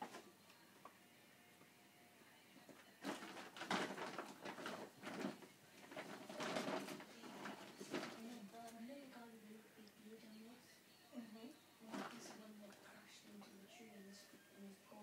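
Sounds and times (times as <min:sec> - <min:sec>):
plastic bag rustling: 0:03.0 - 0:08.7, 0:11.8 - 0:12.6.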